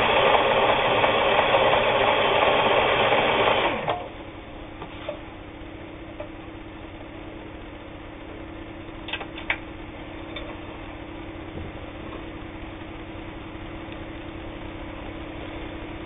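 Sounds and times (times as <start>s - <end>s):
sewing machine motor humming: 0.0s - 4.1s.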